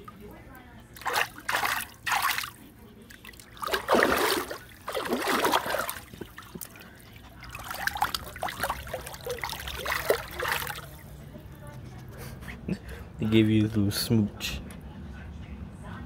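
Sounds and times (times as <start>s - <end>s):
water splashing in paddling pool: 1.0s - 11.2s.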